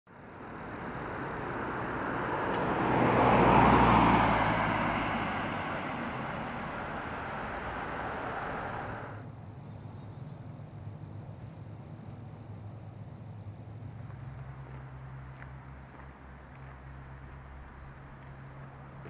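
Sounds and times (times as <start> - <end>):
car passing by: 0.1 - 9.2, 13.9 - 19.0.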